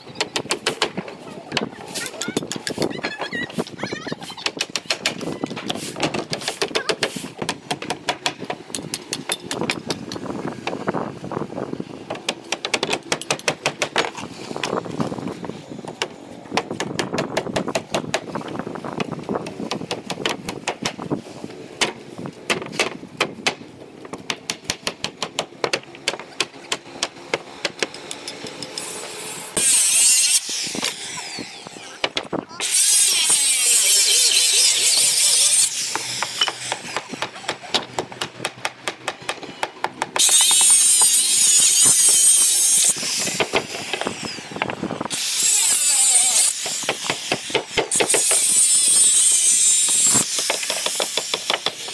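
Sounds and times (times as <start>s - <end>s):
hammers driving nails into wood: 4.4s - 10.1s, 12.1s - 14.2s, 19.0s - 21.0s, 21.8s - 28.2s, 50.4s - 51.9s
power saw cutting a plank: 26.0s - 51.9s.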